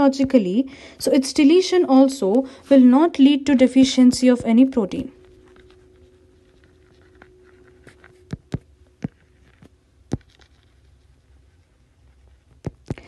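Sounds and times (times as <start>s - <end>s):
faint room hiss: 0.0s - 13.0s
stylus tapping on screen: 7.0s - 10.8s, 12.5s - 13.0s.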